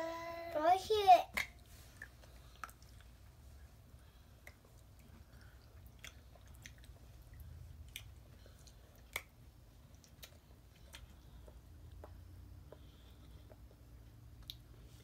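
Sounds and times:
children chewing cake: 1.6s - 15.0s.

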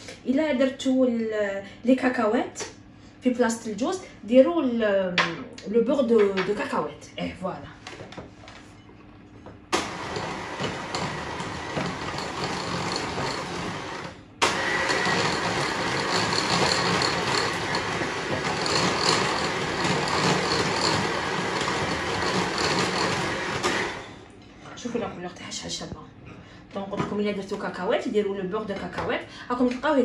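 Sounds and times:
electric hand mixer whipping: 9.8s - 24.2s.

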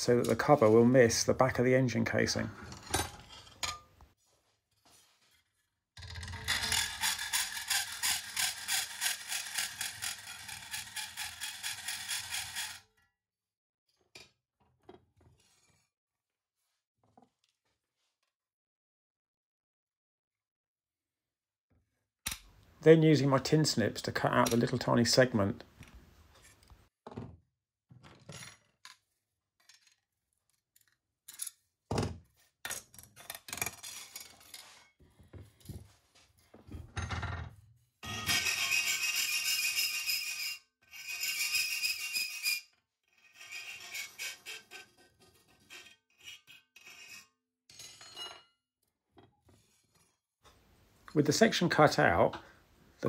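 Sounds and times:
hacksaw cutting metal: 6.6s - 12.8s, 38.0s - 47.3s
metallic knocks and scrapes: 36.7s - 42.6s.

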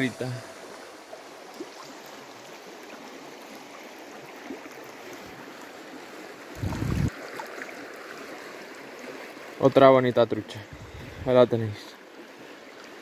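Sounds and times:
river current rushing: 0.0s - 9.8s.

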